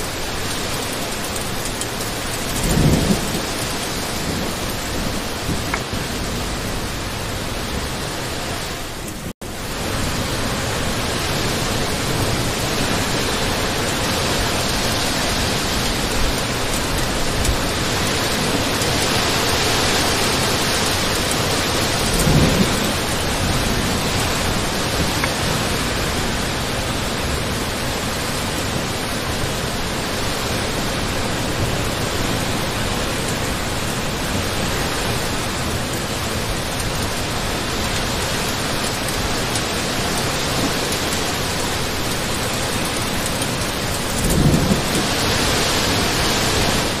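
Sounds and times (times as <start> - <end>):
heavy rain falling: 0.0 - 47.0
low rumbles: 1.2 - 13.1, 20.2 - 29.8, 41.2 - 47.0.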